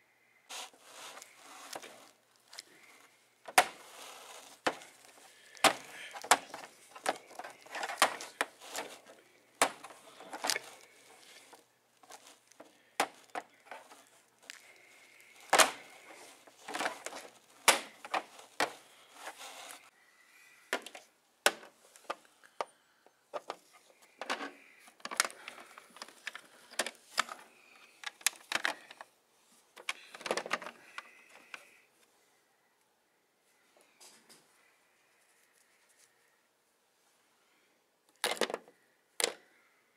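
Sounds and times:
handling rustle: 0.5 - 19.9
plastic toys clacking: 1.1 - 18.8, 23.3 - 29.1, 29.8 - 31.7, 38.1 - 39.4.

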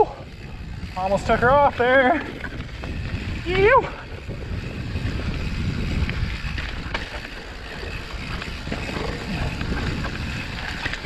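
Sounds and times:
bike clicks and rattles: 0.0 - 11.0
bike rolling on dirt trail: 0.0 - 11.0
wind buffeting microphone: 0.0 - 11.0.

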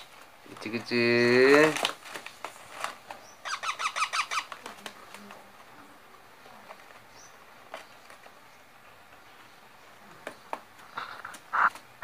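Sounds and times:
parakeet shrill calls: 3.3 - 4.5.

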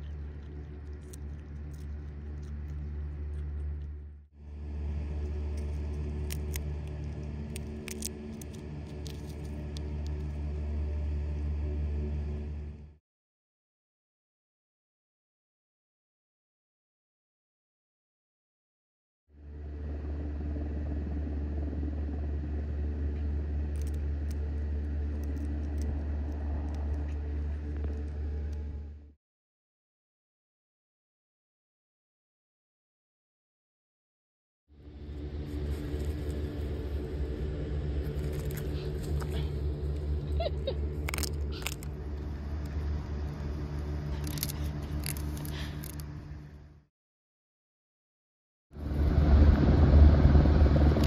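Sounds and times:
low mechanical hum: 0.0 - 13.0, 19.4 - 29.1, 34.8 - 46.8, 48.8 - 51.0
low rumble: 0.0 - 13.0, 19.4 - 29.1, 34.8 - 46.8, 48.8 - 51.0.

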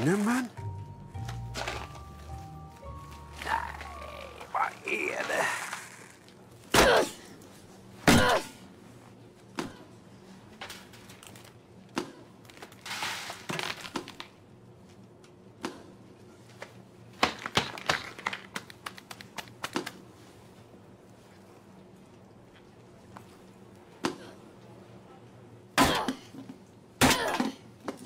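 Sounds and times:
plastic tubes dropping on hard floor: 12.6 - 14.3, 17.2 - 20.0.

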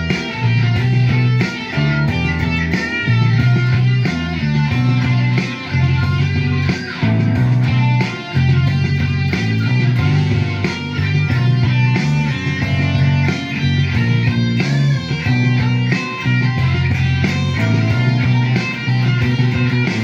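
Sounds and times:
electric guitar rock riff: 0.0 - 20.0.

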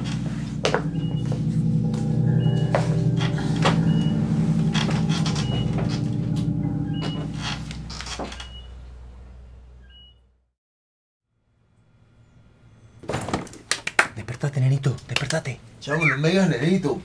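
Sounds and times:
low ominous drone: 0.0 - 9.8.

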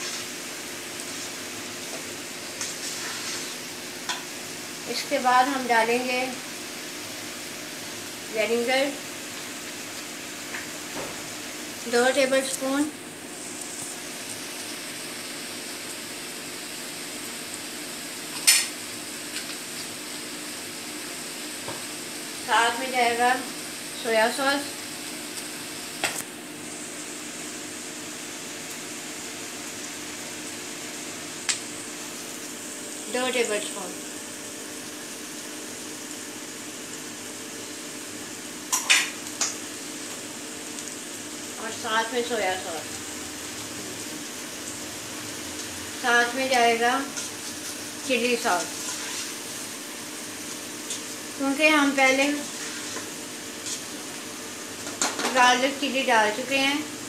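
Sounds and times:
food sizzling in frying pan: 0.0 - 57.0
spoon scraping a pot: 48.7 - 49.4.

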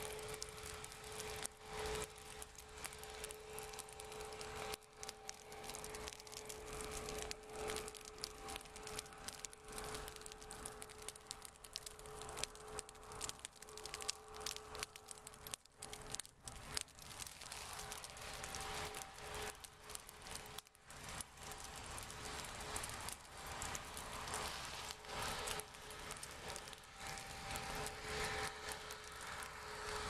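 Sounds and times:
grass burning with crackling: 0.0 - 30.0.

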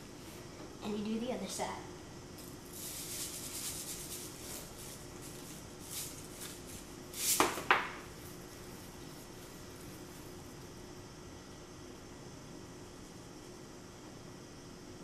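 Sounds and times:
salt grains hissing from shaker: 2.3 - 10.7.

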